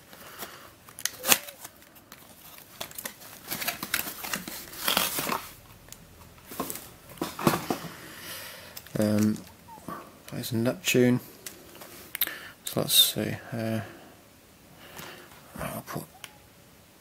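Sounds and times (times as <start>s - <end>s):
cardboard rustling and crinkling: 0.0s - 8.0s.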